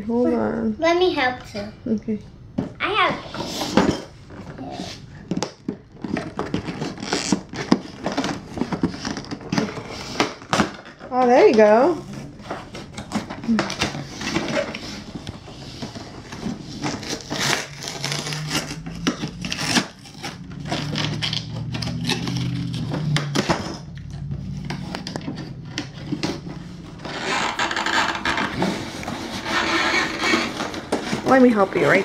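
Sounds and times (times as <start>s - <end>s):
cardboard box scraped and torn: 16.6s - 22.9s.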